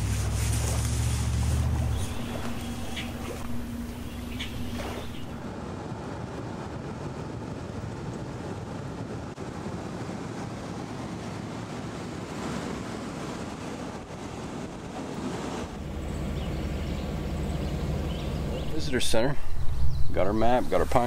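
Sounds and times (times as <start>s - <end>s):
steady low hum: 0.0s - 5.5s, 15.7s - 21.0s
road noise inside a van: 0.0s - 21.0s
wind rushing through window: 0.0s - 21.0s.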